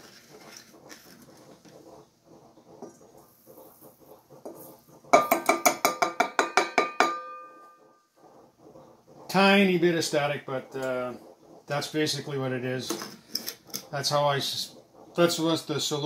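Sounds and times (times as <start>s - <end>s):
faint rustling and scraping: 0.0s - 5.2s, 7.5s - 16.0s
metal bowl ringing: 6.1s - 7.8s.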